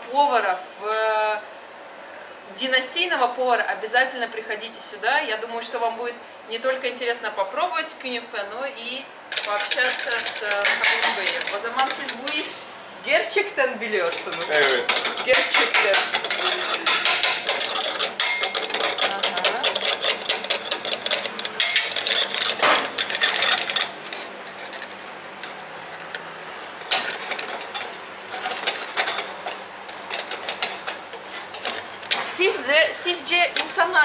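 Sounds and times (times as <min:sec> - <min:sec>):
knife tapping and scraping metal tray: 0:09.3 - 0:12.6, 0:14.0 - 0:26.2, 0:26.8 - 0:34.0.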